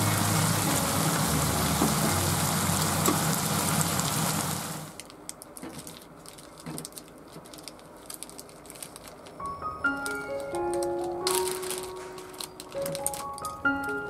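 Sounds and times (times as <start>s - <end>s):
vegetables sizzling in a pan: 0.0s - 5.0s
plastic zipper bag crinkling: 4.9s - 14.0s.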